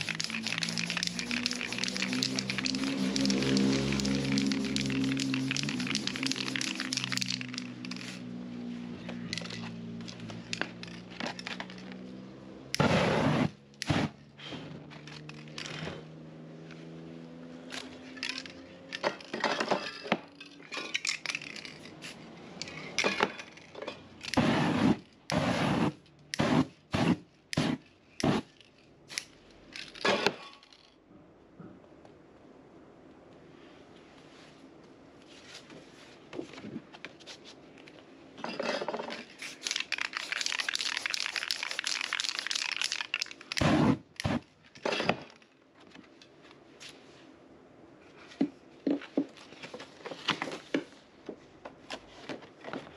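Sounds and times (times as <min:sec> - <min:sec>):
spray paint can hissing: 0:00.0 - 0:08.3, 0:39.4 - 0:44.4.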